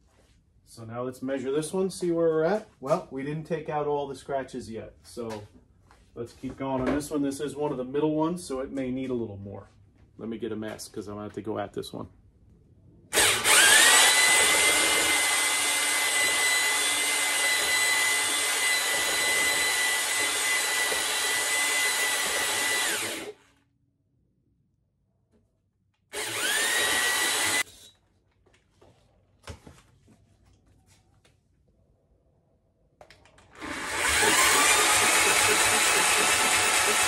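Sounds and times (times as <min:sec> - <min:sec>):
electric drill whining: 0:13.1 - 0:23.5, 0:26.1 - 0:27.7, 0:33.5 - 0:37.0
hone grinding cylinder bore: 0:33.6 - 0:37.0.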